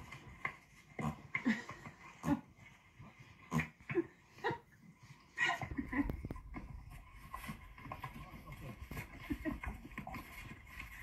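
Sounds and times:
horse farting: 0.0 - 4.7, 5.5 - 11.0.

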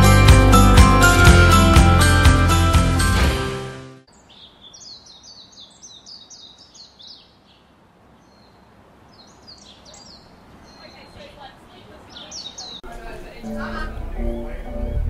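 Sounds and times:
bird chirping: 4.1 - 15.0.

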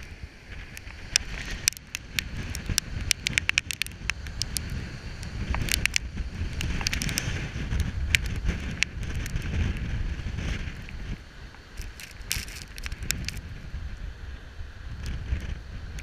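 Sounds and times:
storm surf breaking on rocks: 0.0 - 13.8
wind buffeting microphone: 0.0 - 16.0
sharp ticks: 0.7 - 9.4.

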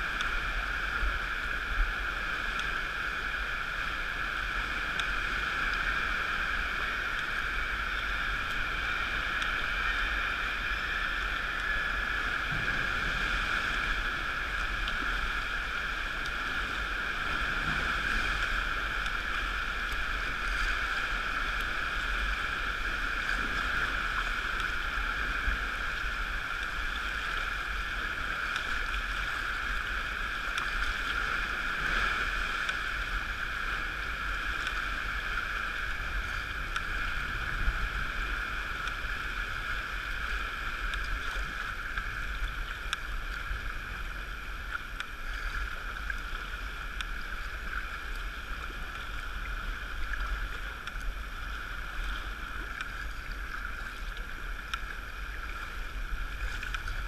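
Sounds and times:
water lapping around kayak hull: 0.0 - 57.0
wind rumbling on microphone: 0.0 - 57.0
faint clicks and tap: 52.7 - 53.0.

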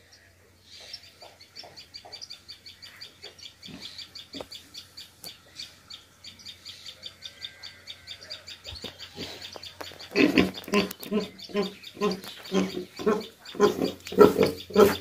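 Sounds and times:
bird chirping fast: 8.6 - 15.0
pigs grunting: 10.1 - 15.0.

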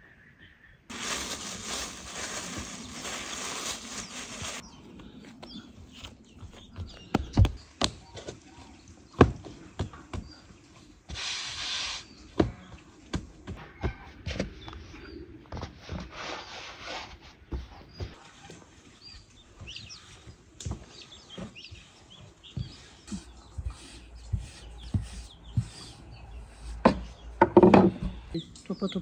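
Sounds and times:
rustling: 0.9 - 4.6.

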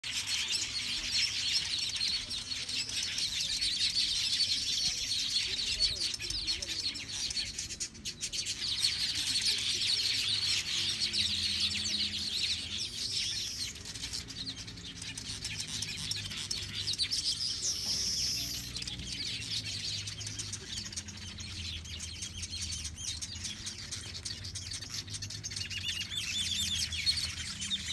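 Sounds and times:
weaver birds chattering: 0.0 - 27.9.

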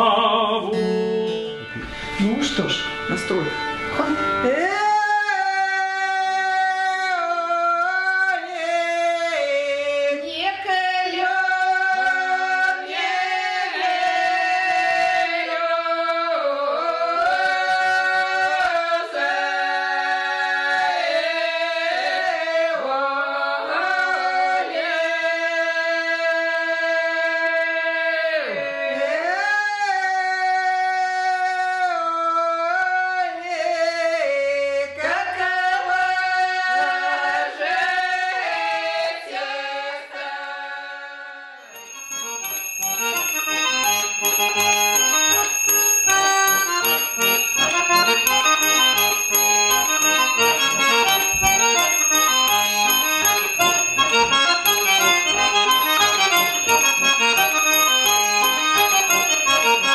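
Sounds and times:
women singing a cappella: 10.2 - 27.1, 35.1 - 41.5
steady high tone: 41.6 - 59.9
concertina playing a tune: 41.7 - 59.9.

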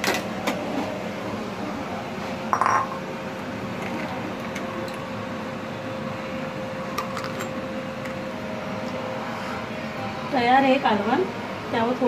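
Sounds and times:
mechanical hum: 0.0 - 12.0
glass bowl clattering on stone: 2.5 - 3.0.

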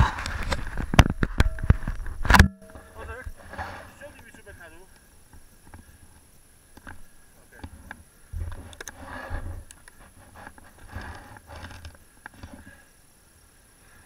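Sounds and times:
snow and clothing scraping: 3.0 - 4.7.

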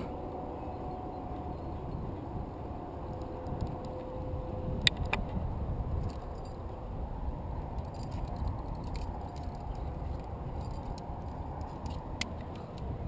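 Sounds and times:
wind buffeting microphone: 0.0 - 13.0
metallic clinks of carabiners: 4.8 - 13.0.

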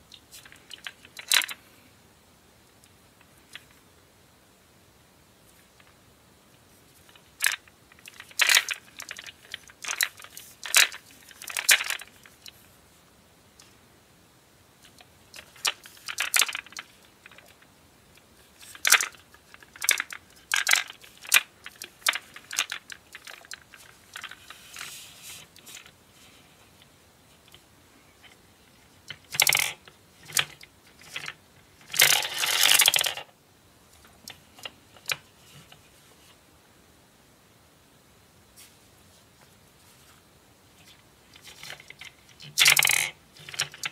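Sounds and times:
gumballs clattering down plastic chute: 31.9 - 33.3, 42.6 - 43.9.

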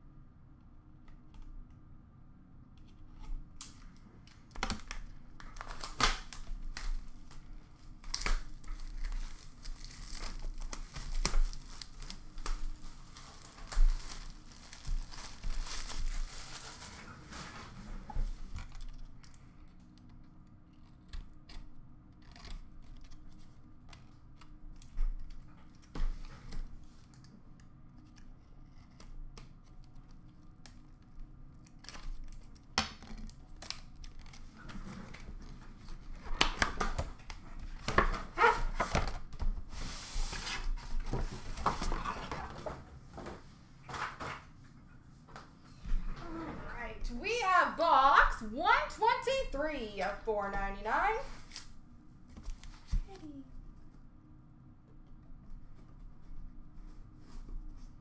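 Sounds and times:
plastic shrink-wrap crinkling: 4.6 - 25.9, 28.0 - 34.7.

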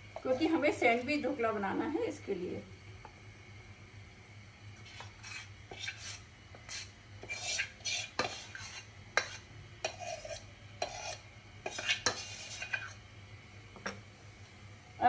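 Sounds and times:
spoon scraping a metal pot: 4.8 - 13.0.

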